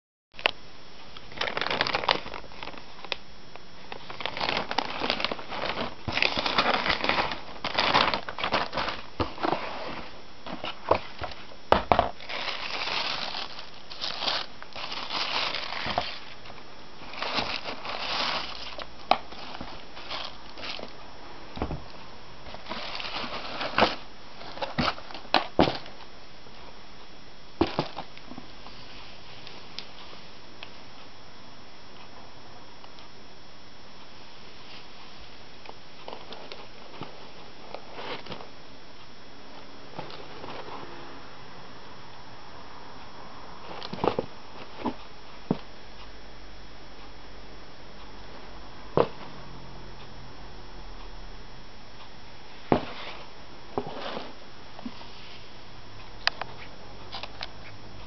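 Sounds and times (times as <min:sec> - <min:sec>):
plastic bag and paper crinkling: 0:01.3 - 0:03.2, 0:03.9 - 0:21.0, 0:22.4 - 0:26.0.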